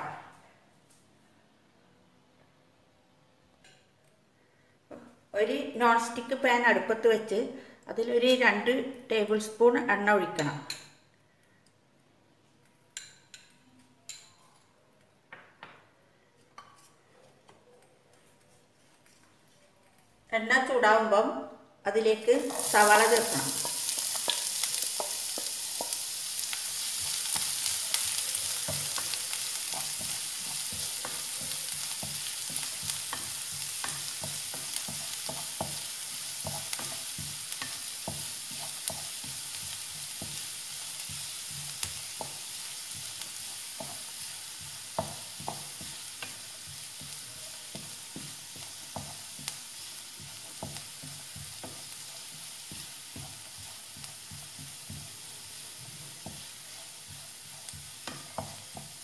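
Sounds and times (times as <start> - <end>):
onions sizzling in oil: 22.0 - 59.0
wooden spatula scraping pan: 22.4 - 59.0.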